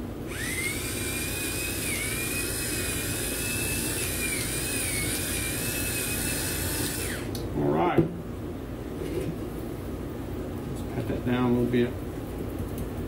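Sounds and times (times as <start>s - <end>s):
electric pepper mill motor whine: 0.2s - 7.4s
pepper grinding hiss: 0.3s - 7.4s.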